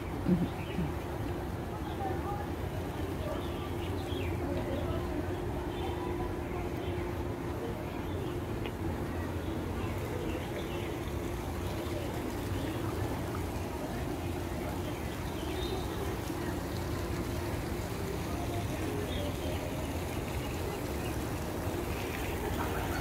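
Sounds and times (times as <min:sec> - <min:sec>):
fountain splashing into pond: 0:07.6 - 0:23.0.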